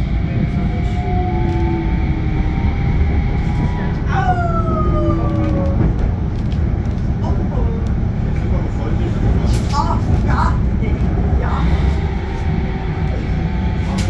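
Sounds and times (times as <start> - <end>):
tram wheels rumbling on rail: 0.0 - 14.0
electric whine gliding down: 0.5 - 5.8.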